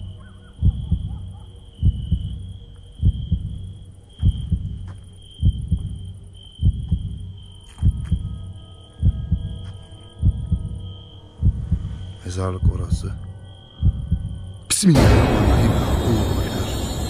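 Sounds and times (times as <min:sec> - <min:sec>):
heartbeat thumps: 0:00.0 - 0:13.2, 0:13.8 - 0:16.0
steady high whine: 0:14.9 - 0:17.0.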